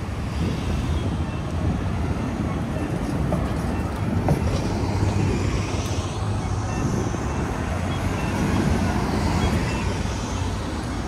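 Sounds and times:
traffic rumble: 0.0 - 11.0.

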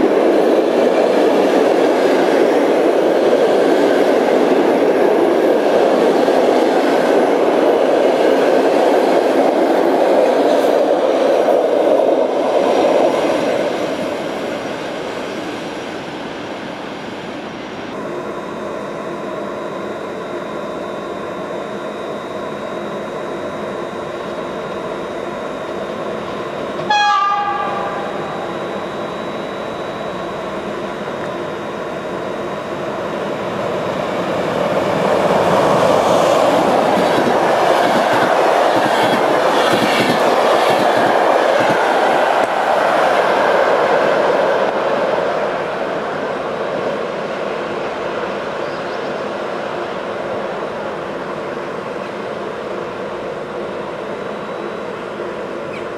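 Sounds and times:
train approaching: 0.0 - 55.9
train carriages rolling past: 22.5 - 55.9
train horn blast: 26.8 - 28.1.

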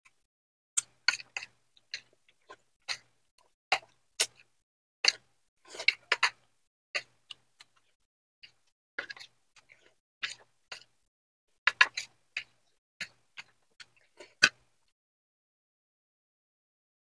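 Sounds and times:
mouth chewing clicks and smacks: 0.8 - 10.9.

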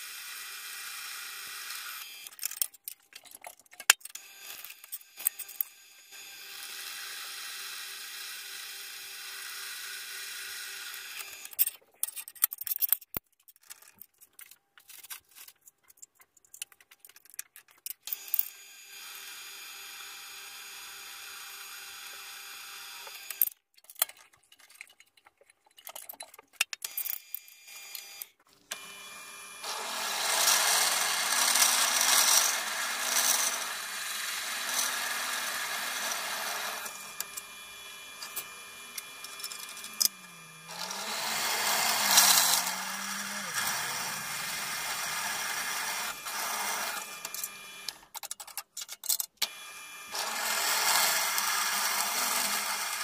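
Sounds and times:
drill press grinding into steel: 28.0 - 48.0, 49.4 - 53.0.

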